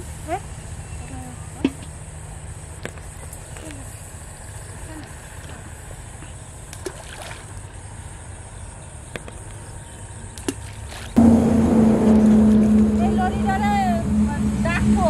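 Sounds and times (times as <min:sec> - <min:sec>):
motor hum: 0:11.1 - 0:15.0
low steady rumble: 0:11.2 - 0:15.0.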